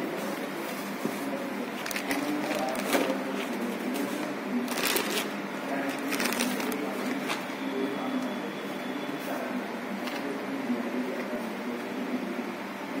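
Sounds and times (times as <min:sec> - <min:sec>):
plastic bag crinkling: 0:01.8 - 0:03.2, 0:04.6 - 0:07.5.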